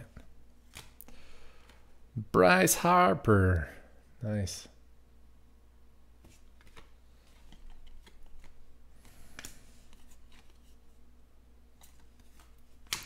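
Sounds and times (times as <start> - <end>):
trading cards flipped by hand: 0.6 - 1.0, 6.2 - 10.8, 11.8 - 13.0.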